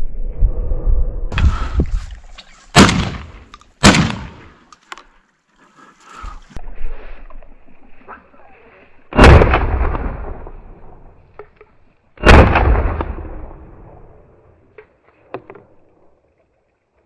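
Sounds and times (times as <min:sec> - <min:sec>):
shotgun shots with echo: 0:02.8 - 0:04.5, 0:09.2 - 0:10.4, 0:12.2 - 0:13.8.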